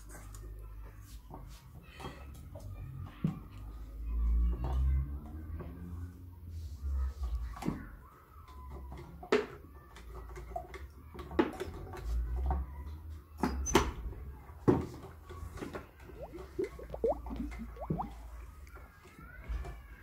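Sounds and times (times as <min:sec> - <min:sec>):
liquid pouring: 0:16.2 - 0:18.2.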